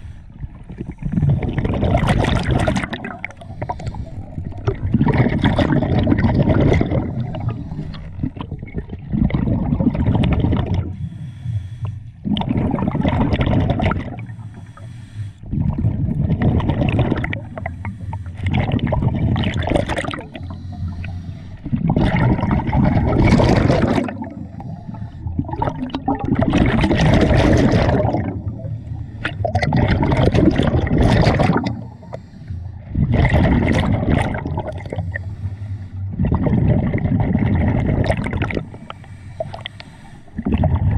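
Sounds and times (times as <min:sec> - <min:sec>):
exhaled bubbles underwater: 0:00.0 - 0:11.4, 0:12.0 - 0:40.9.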